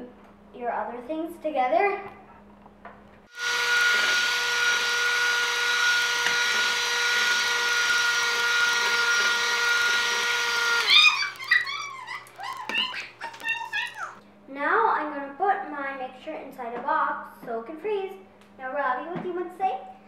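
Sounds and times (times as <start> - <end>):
electric hand mixer whining: 3.3 - 13.4.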